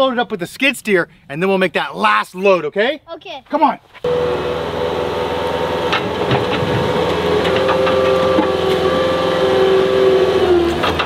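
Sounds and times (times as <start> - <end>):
diesel engine droning whine: 4.0 - 11.0
bucket knocking and scraping dirt: 5.9 - 8.9.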